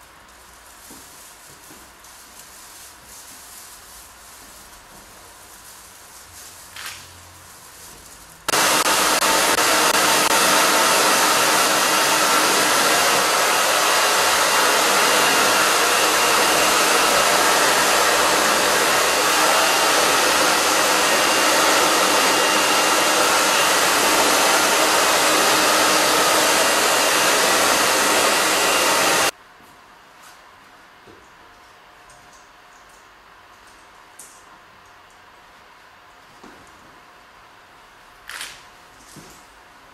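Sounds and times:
hair dryer blowing air: 0:08.5 - 0:29.4.

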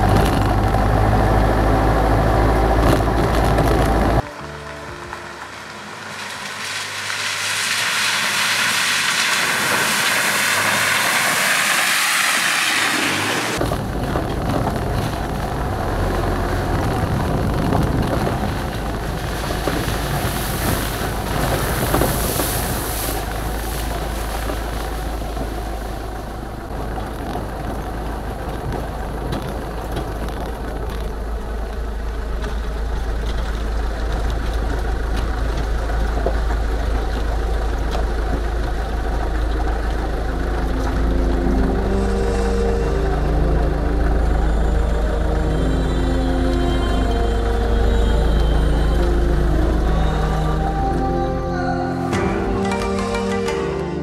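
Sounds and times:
car engine running: 0:00.0 - 0:53.0.

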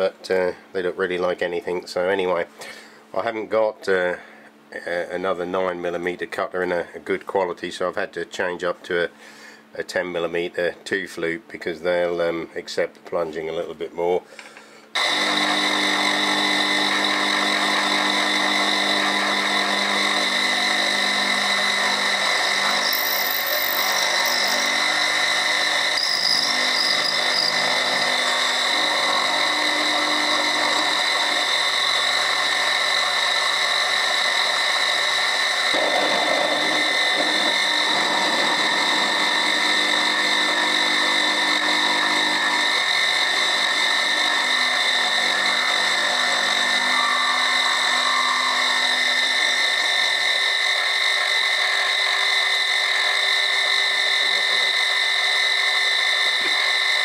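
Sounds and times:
milling machine whining: 0:14.5 - 0:57.0
cutter milling steel: 0:15.0 - 0:57.0.

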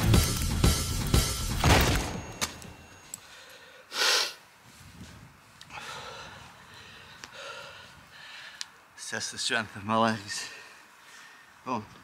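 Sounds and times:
faint breathing: 0:03.1 - 0:04.6, 0:05.6 - 0:08.9, 0:10.3 - 0:11.6.

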